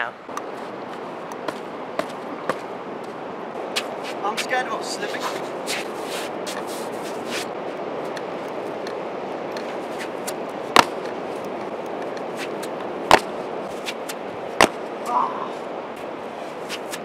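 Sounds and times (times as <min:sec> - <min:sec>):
steady rushing background: 0:00.2 - 0:17.0
shoes slapping on rocks: 0:01.4 - 0:02.7, 0:03.8 - 0:04.5, 0:09.6 - 0:14.9.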